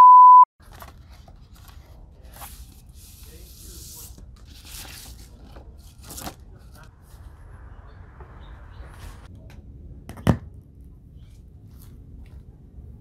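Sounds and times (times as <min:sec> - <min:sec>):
paper sleeve rustling and scraping: 0:00.6 - 0:07.2.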